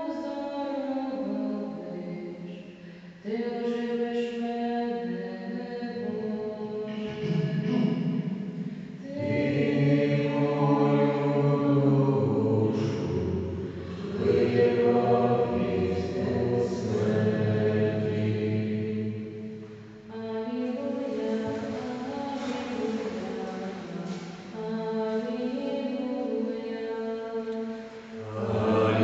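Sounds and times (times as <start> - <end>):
voices singing slow chant: 8.6 - 19.6, 28.0 - 29.0.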